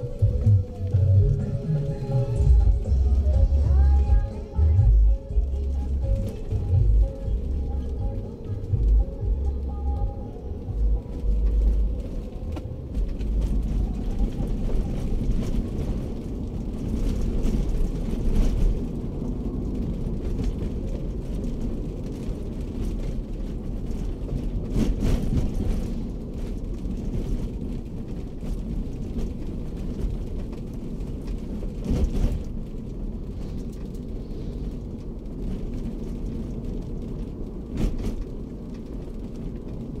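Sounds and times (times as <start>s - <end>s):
car engine and road rumble: 0.0s - 40.0s.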